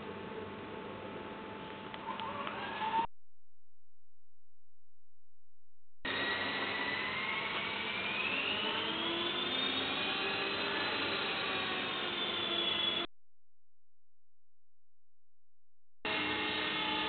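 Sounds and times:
toy helicopter motor whirring: 0:06.1 - 0:13.1.

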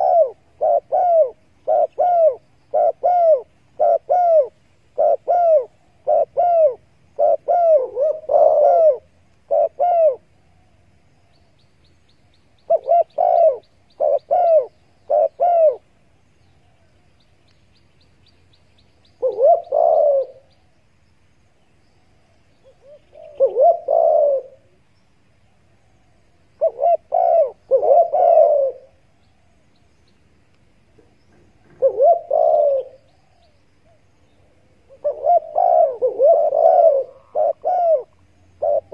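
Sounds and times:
doves cooing: 0:00.0 - 0:10.9, 0:12.6 - 0:16.0, 0:19.2 - 0:20.6, 0:22.6 - 0:24.8, 0:25.7 - 0:29.6, 0:30.9 - 0:38.9.

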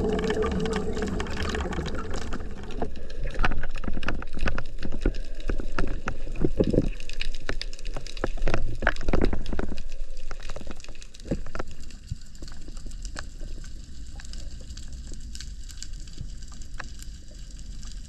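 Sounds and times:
underwater sloshing and gurgling: 0:00.0 - 0:18.0.

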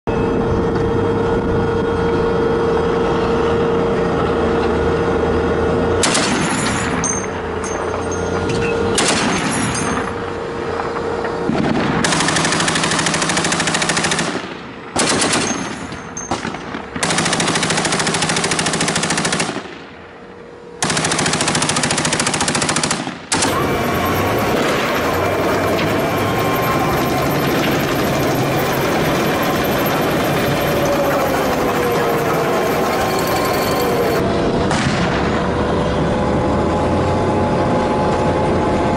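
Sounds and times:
tank engine humming: 0:00.1 - 0:14.3, 0:20.9 - 0:34.6
heavy machine-gun fire: 0:06.0 - 0:07.1, 0:08.9 - 0:10.1, 0:11.5 - 0:20.0, 0:20.8 - 0:35.6.

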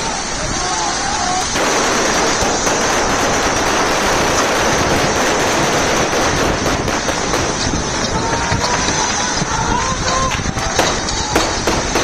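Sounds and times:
automatic gunfire: 0:01.5 - 0:07.6, 0:10.8 - 0:12.0.

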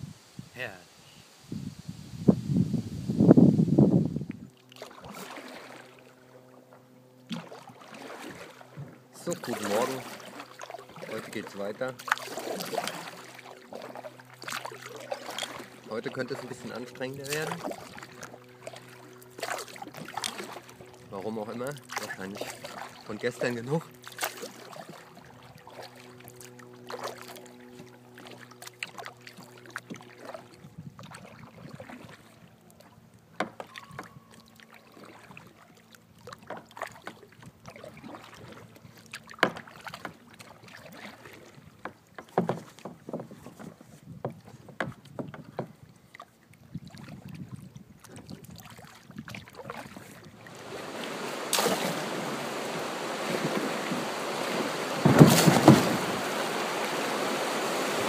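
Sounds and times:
paddle strokes splashing: 0:04.5 - 0:58.0
paddle knocking against boat: 0:33.4 - 0:34.2, 0:39.3 - 0:40.2, 0:41.8 - 0:45.8, 0:53.1 - 0:56.8
river rapid rushing: 0:50.5 - 0:58.0.

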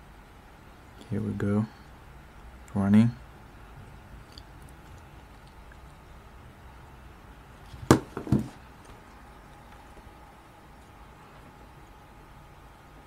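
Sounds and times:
faint room hum: 0:00.0 - 0:13.0
phone knocking on wooden desk: 0:07.9 - 0:08.6.

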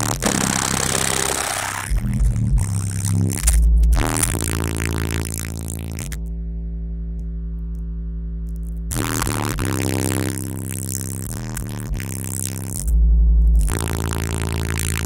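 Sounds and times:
long held deep bass note: 0:00.0 - 0:08.4
bass-heavy music through subwoofers: 0:00.0 - 0:15.0.

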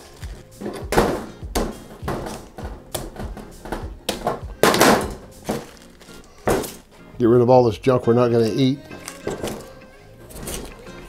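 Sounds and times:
plastic bag crinkling and tearing: 0:05.4 - 0:06.9, 0:08.5 - 0:10.8.

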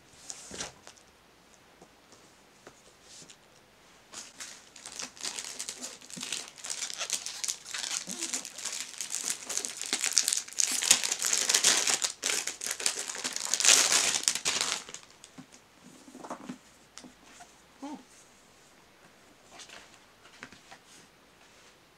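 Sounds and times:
plastic wrap crinkling: 0:04.2 - 0:15.4.

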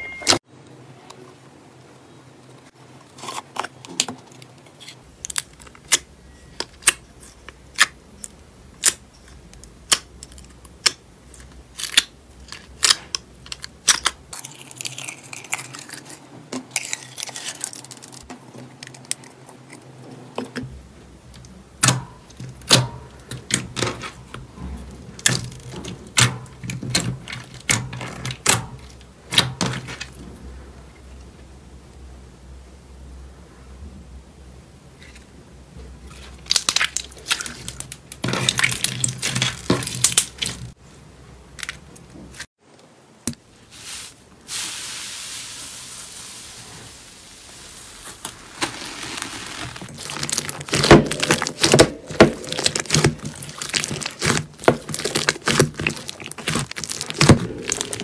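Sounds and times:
slime crackling: 0:36.1 - 0:40.8, 0:47.6 - 0:58.0
soft squishy thuds: 0:49.8 - 0:58.0
slime clicking and popping: 0:50.0 - 0:58.0.

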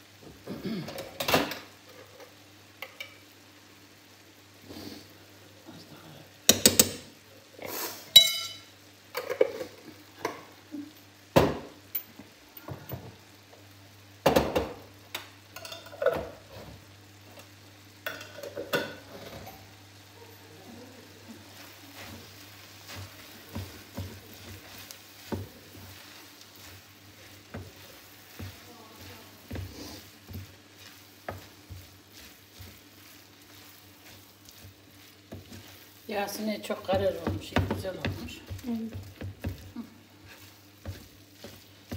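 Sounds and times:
meat and onions sizzling: 0:00.0 - 0:41.9
wooden spoon scraping mince: 0:21.3 - 0:41.9.

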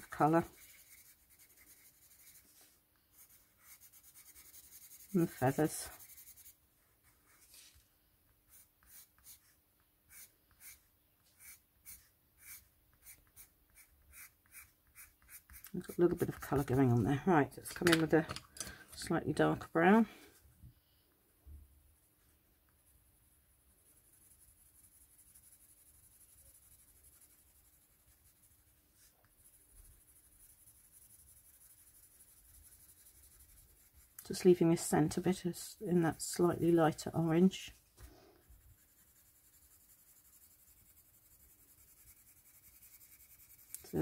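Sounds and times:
coloured pencil scratching on card: 0:00.0 - 0:07.6, 0:08.5 - 0:17.9, 0:22.7 - 0:34.3, 0:38.4 - 0:44.0.

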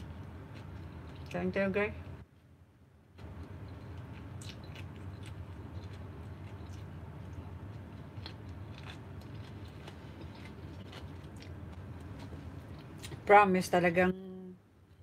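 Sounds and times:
chewing cucumber: 0:03.2 - 0:13.3.

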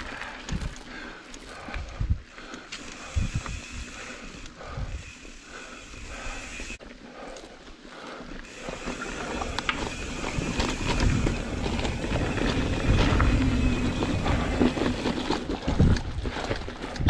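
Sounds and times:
bike tyres rumbling over dirt: 0:00.0 - 0:07.3, 0:08.0 - 0:17.0
bike clicks and rattling knocks: 0:08.5 - 0:17.0.

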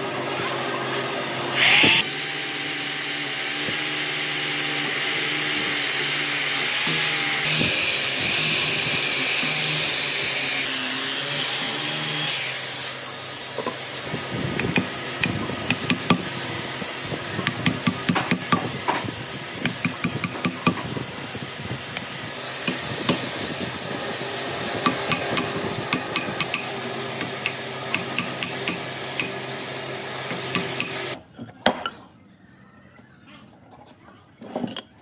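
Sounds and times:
wood chisel scraping and tapping: 0:24.8 - 0:29.4.

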